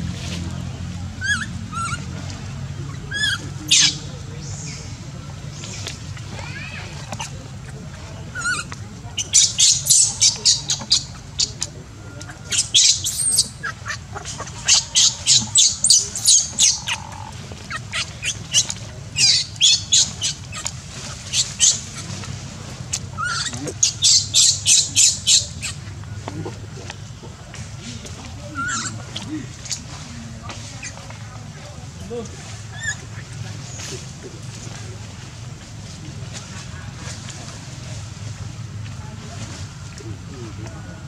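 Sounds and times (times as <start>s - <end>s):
baby monkey screaming: 1.2s - 2.0s, 12.5s - 20.6s, 21.3s - 22.0s, 23.2s - 25.8s.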